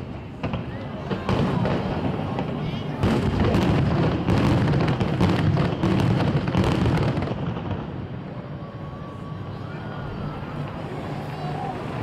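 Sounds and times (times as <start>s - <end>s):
fireworks bursting and crackling: 0.0s - 8.6s.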